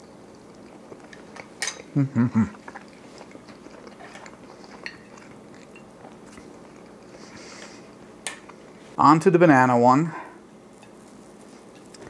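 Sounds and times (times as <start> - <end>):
quiet chewing: 0.0 - 9.0, 10.7 - 12.0
person humming: 2.0 - 2.6.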